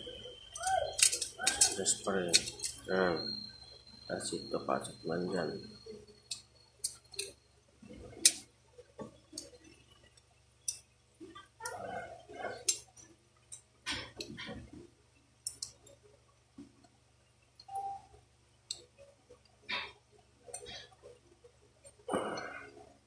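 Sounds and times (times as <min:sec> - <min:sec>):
parts rubbing and scraping: 0:00.0 - 0:03.4
pistol parts clicking: 0:00.6 - 0:02.8.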